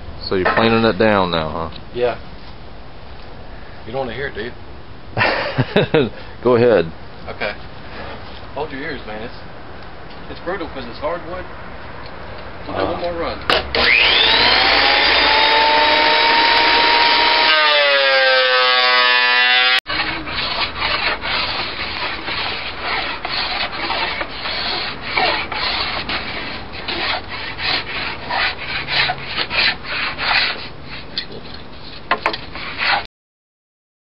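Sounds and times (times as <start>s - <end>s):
thickness planer whining: 13.5s - 31.0s
hand tool scraping wooden board: 13.8s - 33.1s.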